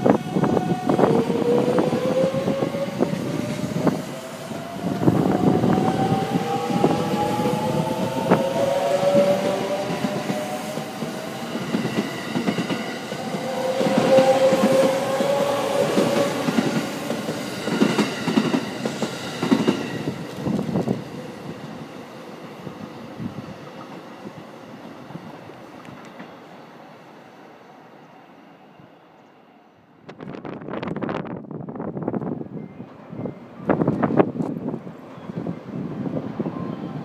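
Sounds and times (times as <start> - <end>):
train rumble: 0.0 - 21.9.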